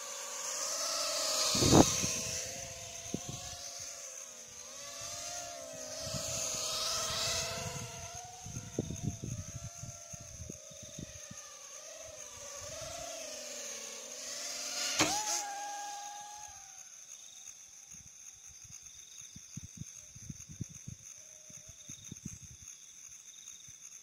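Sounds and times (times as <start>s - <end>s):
drone propellers whining: 0.0s - 18.1s.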